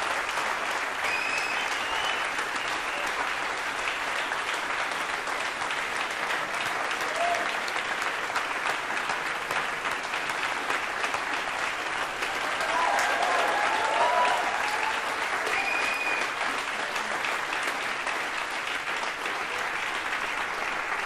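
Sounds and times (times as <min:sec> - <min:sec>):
audience applauding: 0:00.0 - 0:21.0
brief calls from audience: 0:12.5 - 0:16.6.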